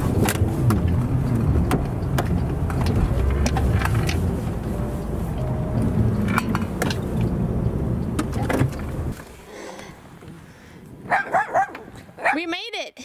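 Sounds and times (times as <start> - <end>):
vehicle engine running: 0.0 - 9.2
car door opening: 0.0 - 9.3
small dog barking: 11.1 - 12.4.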